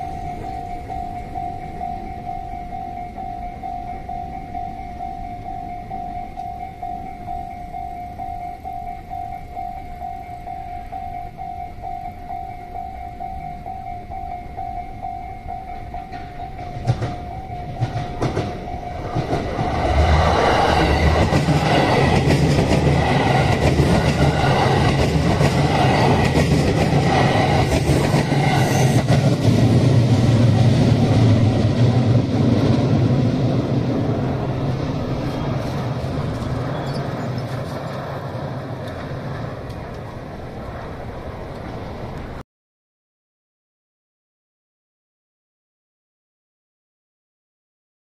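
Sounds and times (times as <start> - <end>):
crossing alarm pulsing tone: 0.0 - 32.4
electric train passing: 0.0 - 42.4.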